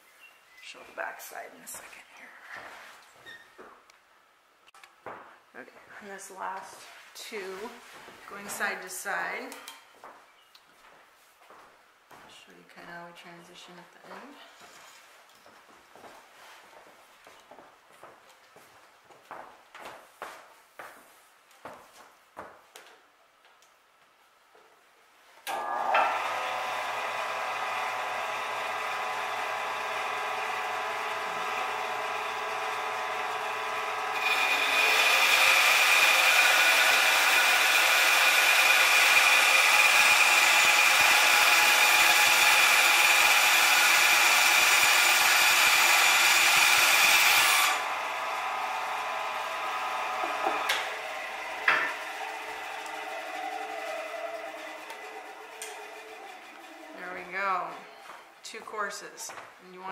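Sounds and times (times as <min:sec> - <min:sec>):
power tool motor running: 0:25.5 - 0:58.1.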